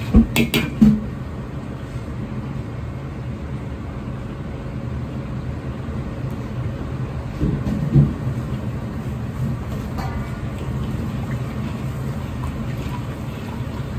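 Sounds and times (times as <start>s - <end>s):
gas burner rumbling: 0.0s - 13.9s
sauce simmering: 8.6s - 13.9s.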